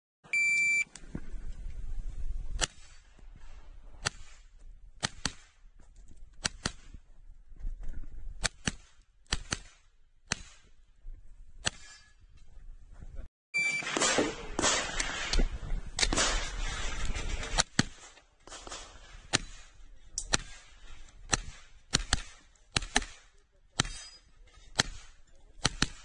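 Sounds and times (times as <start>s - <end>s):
carbine gunshots: 13.7s - 26.0s.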